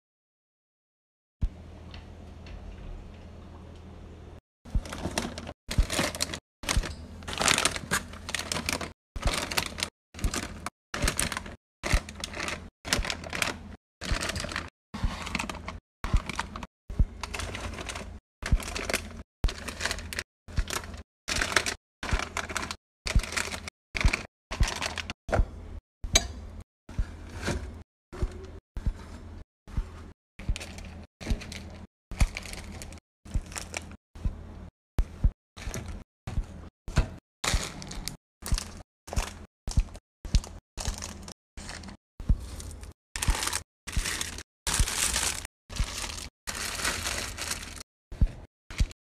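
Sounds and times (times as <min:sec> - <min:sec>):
plastic snack bags crinkling: 0:04.8 - 0:25.1, 0:30.5 - 0:34.0, 0:37.4 - 0:47.8.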